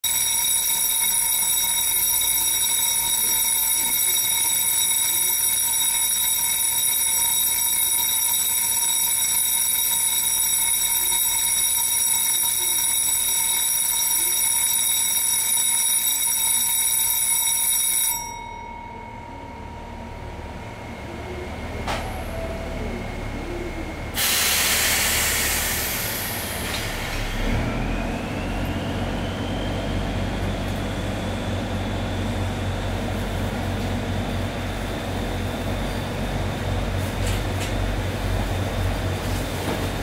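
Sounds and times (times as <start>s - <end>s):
electric bell ringing: 0.0s - 20.2s.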